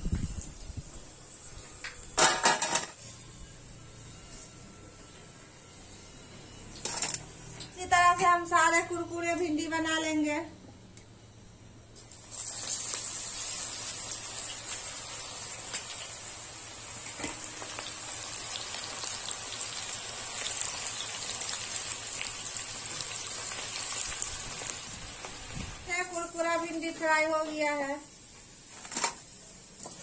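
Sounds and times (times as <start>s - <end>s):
okra sizzling in hot oil: 12.0s - 30.0s.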